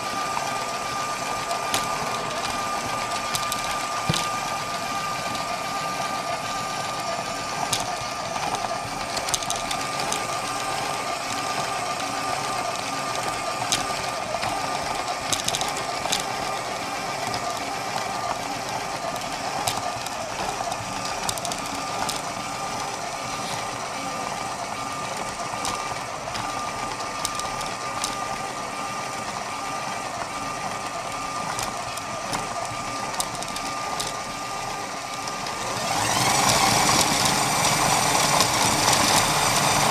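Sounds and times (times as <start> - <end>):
electric motor whirring: 0.0 - 39.9
light plastic clicks: 25.1 - 28.3, 30.2 - 34.2.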